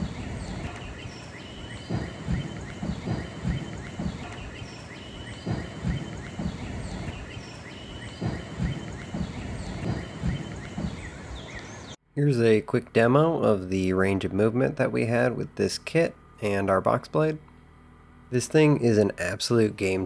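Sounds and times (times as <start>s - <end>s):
wind buffeting microphone: 0.0s - 12.0s
birds chirping: 0.0s - 20.0s.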